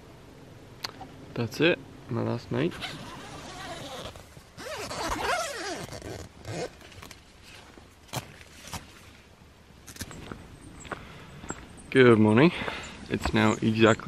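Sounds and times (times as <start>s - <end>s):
tent zipper rasping: 2.7s - 7.1s.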